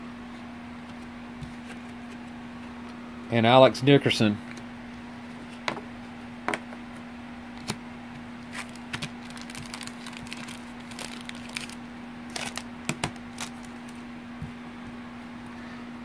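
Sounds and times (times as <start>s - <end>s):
steady low hum: 0.0s - 16.0s
cards being flipped through: 8.4s - 14.0s.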